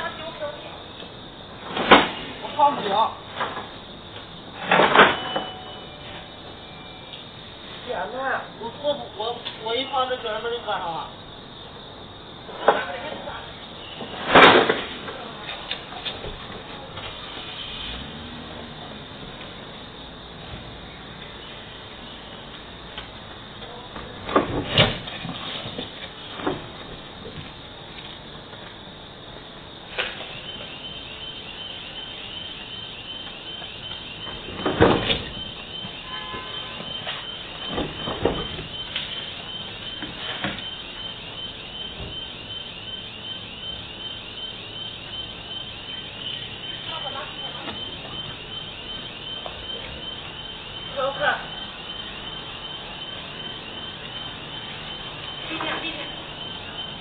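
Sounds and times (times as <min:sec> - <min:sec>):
street traffic: 0:00.0 - 0:57.0.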